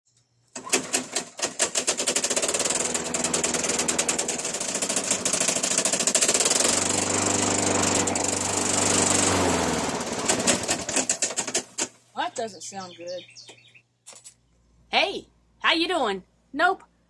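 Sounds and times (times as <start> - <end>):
lawn mower engine running rough: 0.6 - 12.0
person speaking: 12.1 - 13.4.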